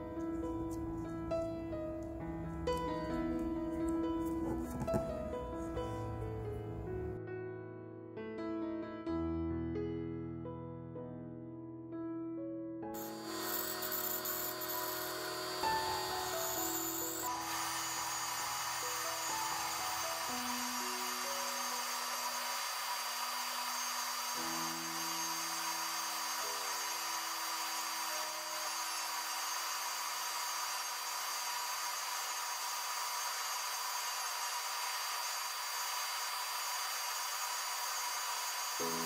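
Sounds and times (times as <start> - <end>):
rotary tool sanding wood: 13.0 - 39.0.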